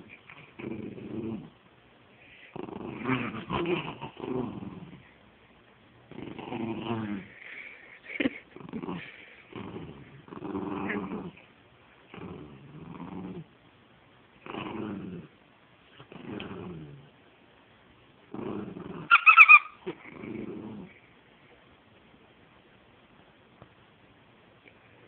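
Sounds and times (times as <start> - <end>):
small dog growling: 0.0 - 1.6, 2.4 - 5.2, 6.1 - 11.5, 12.1 - 13.5, 14.4 - 15.4, 16.0 - 17.2, 18.3 - 21.1.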